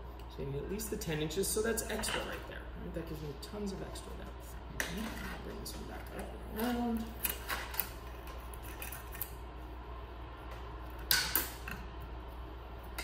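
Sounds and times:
low steady hum: 0.0s - 13.0s
wire scraping and clicking: 4.8s - 9.4s.

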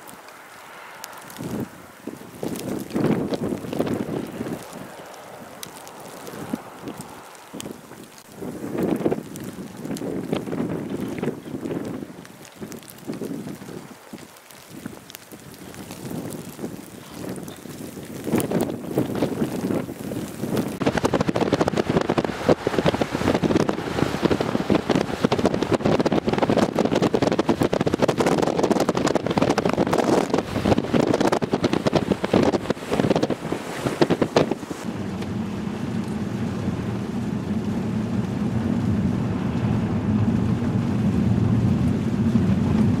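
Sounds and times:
gusty wind buffeting microphone: 0.0s - 43.0s
low engine drone: 34.9s - 43.0s.

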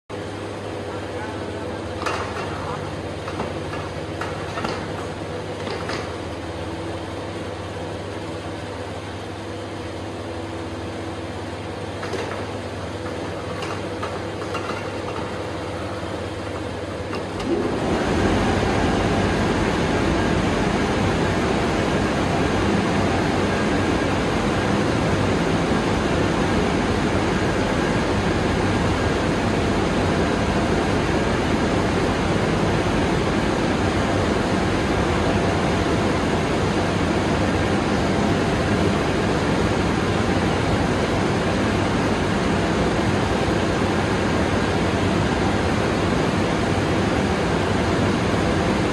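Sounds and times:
low machine hum: 0.1s - 48.9s.

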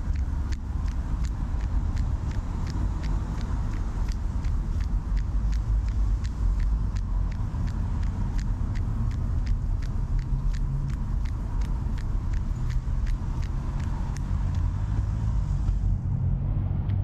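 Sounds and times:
low rumble of city traffic: 0.0s - 17.0s.

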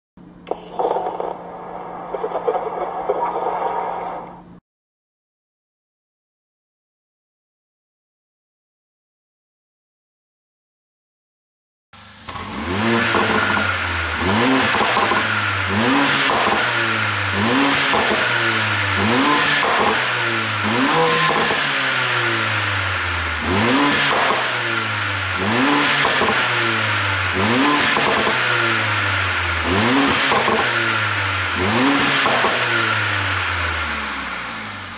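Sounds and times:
car engine revving: 12.0s - 34.9s.

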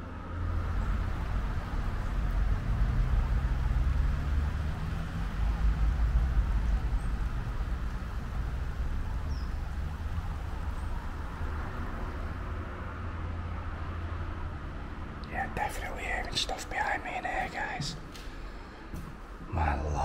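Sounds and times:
low outdoor rumble: 0.0s - 20.0s
faint bird chirps: 8.7s - 11.1s.

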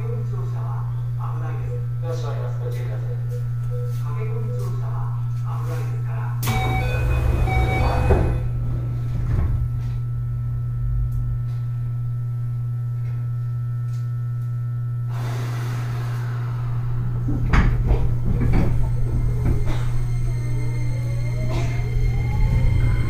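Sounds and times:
train electrical hum: 0.0s - 23.0s
sliding doors knocking: 6.6s - 9.6s, 17.2s - 20.0s.

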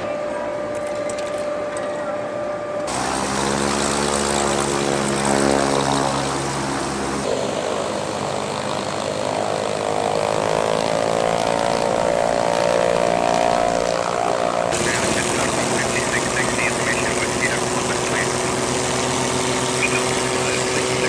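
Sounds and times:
propeller plane engines running: 0.0s - 21.0s.

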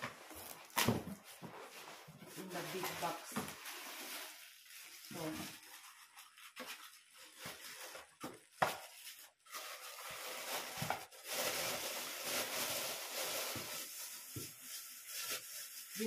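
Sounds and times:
plastic wrapping crinkling: 0.0s - 16.0s.

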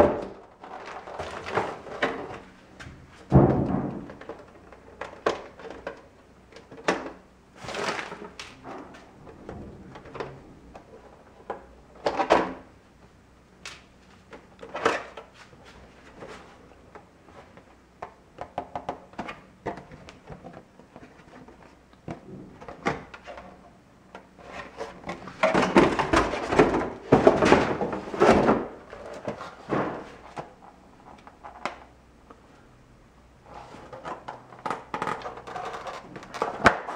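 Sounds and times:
clattering and rustling: 0.0s - 12.6s, 19.2s - 31.9s.

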